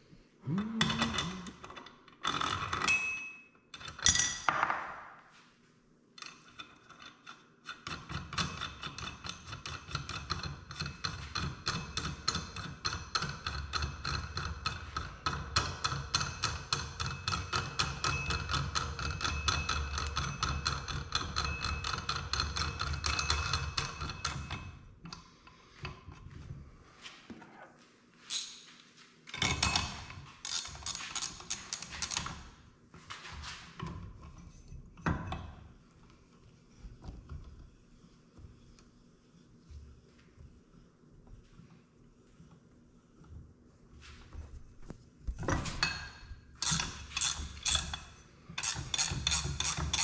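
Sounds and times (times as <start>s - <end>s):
metal tools clinking: 0.8s - 4.5s
ratchet wrench clicking: 46.6s - 48.0s, 48.6s - 50.0s.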